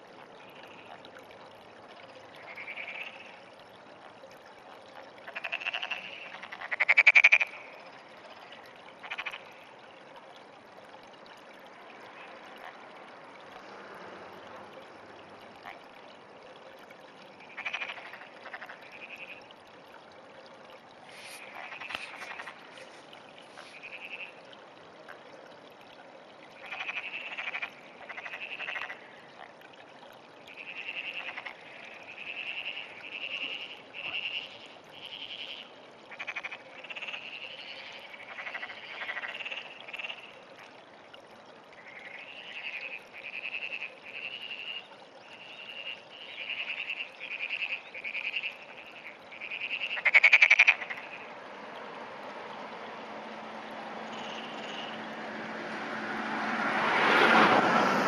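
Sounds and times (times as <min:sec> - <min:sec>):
frog croaking: 0:02.4 - 0:03.5, 0:05.0 - 0:07.8, 0:08.5 - 0:09.7, 0:15.6 - 0:16.0, 0:17.4 - 0:19.6, 0:21.1 - 0:24.5, 0:26.6 - 0:29.6, 0:30.5 - 0:40.5, 0:41.8 - 0:51.4, 0:54.0 - 0:55.2.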